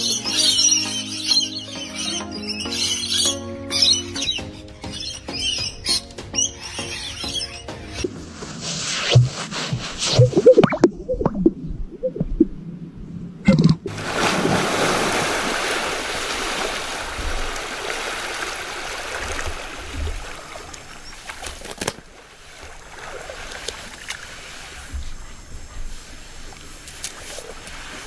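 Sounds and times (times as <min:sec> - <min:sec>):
rushing and splashing water: 0:13.5 - 0:25.2.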